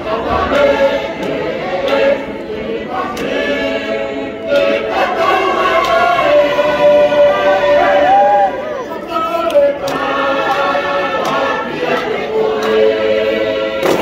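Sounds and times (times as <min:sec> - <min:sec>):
choir singing: 0:00.0 - 0:14.0
hand claps: 0:00.1 - 0:03.7, 0:04.4 - 0:06.4, 0:09.4 - 0:13.2, 0:13.8 - 0:14.0.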